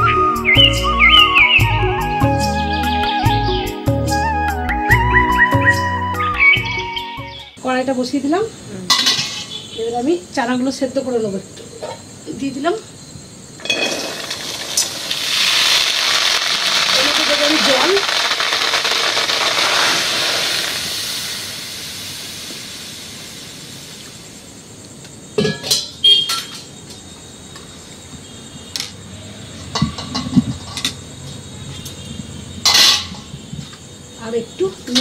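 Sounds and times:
water pouring into pan: 13.6 - 24.0
metal clanks and knocks: 29.7 - 31.0.

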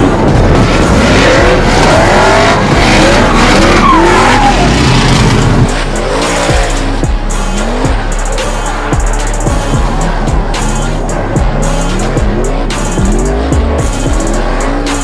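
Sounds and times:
car engines revving: 0.0 - 15.0
tyres screeching: 0.2 - 15.0
music with thumping kick drum: 6.3 - 10.6, 11.3 - 15.0.

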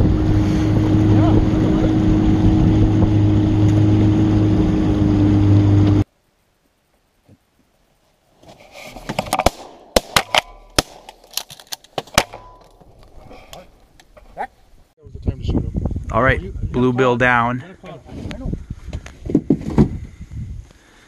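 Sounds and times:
outboard boat motor running: 0.0 - 6.0.

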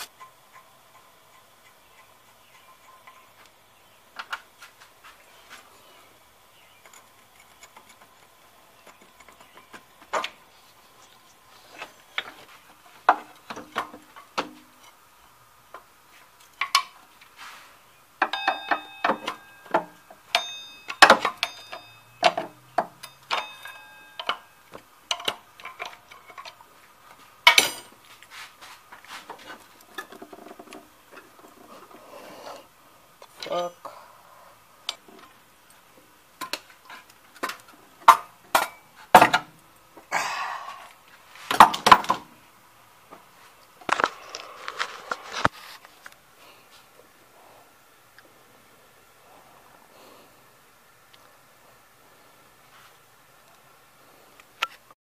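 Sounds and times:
hand tools clinking on metal: 6.7 - 10.3, 18.2 - 26.7, 27.4 - 28.0, 36.4 - 39.4
ringing metallic clinks: 18.2 - 25.9.

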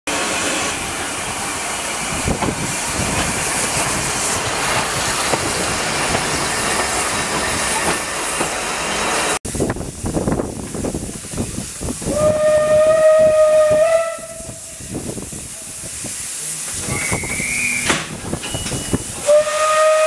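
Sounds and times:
steam locomotive hissing: 0.1 - 20.0
clanks and rail clatter: 2.1 - 9.4, 16.6 - 19.4.

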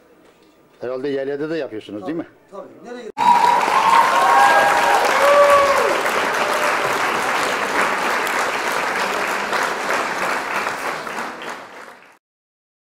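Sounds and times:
applause: 3.2 - 12.2.

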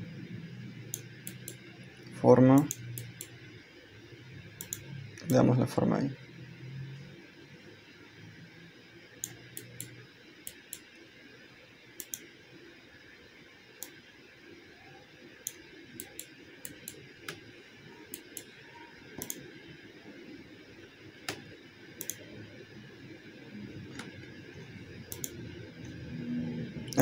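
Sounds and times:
faint room noise: 0.0 - 27.0
computer mouse clicking: 0.9 - 3.4, 4.6 - 5.4, 9.2 - 11.0, 12.0 - 12.3, 13.8 - 14.0, 15.4 - 17.4, 18.1 - 18.6, 19.2 - 19.6, 21.2 - 22.2, 25.1 - 26.0.

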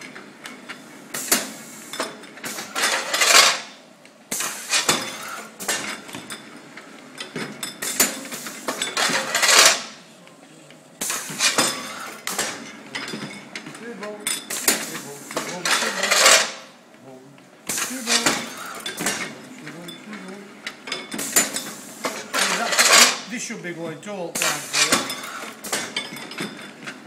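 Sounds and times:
pneumatic hissing: 1.1 - 3.6, 4.3 - 5.8, 11.0 - 12.6, 17.7 - 19.2, 21.1 - 23.2
glass bottles clinking: 12.9 - 14.7, 24.4 - 26.9.

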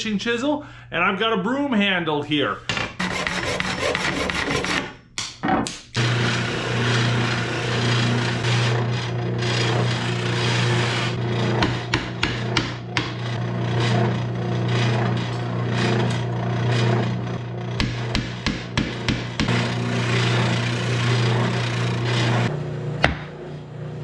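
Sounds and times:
handsaw strokes through wood: 3.0 - 4.8, 6.0 - 11.6
wood rasping against sander: 3.0 - 4.8, 6.0 - 22.5
sander humming: 6.0 - 24.0.

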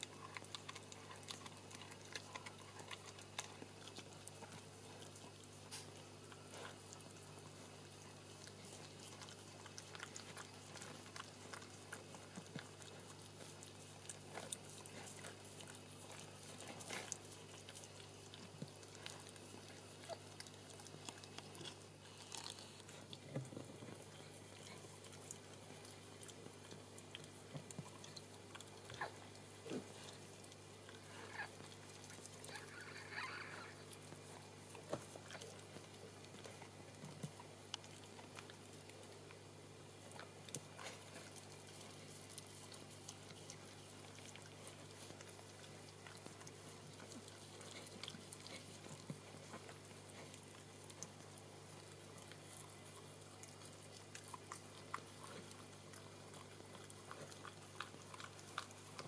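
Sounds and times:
dog licking puppy: 0.0 - 59.0
steady low hum: 0.0 - 59.0.

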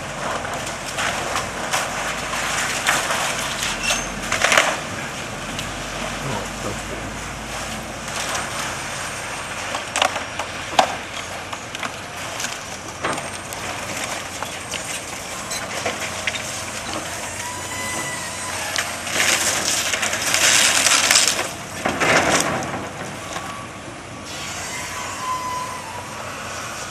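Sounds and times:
hydraulic jaws crushing debris: 8.1 - 23.5.

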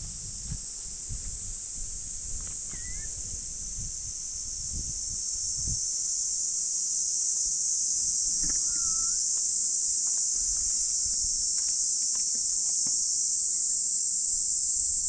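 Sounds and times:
insects droning: 0.0 - 15.0
faint whistled note: 2.7 - 3.2, 8.4 - 9.2.

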